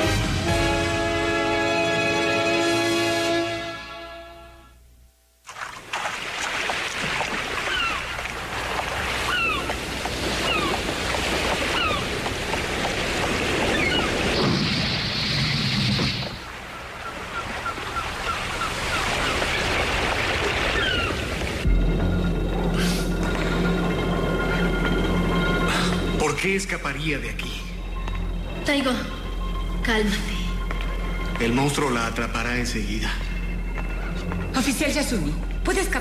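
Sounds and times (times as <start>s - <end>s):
music: 0.0s - 4.8s, 21.6s - 36.0s.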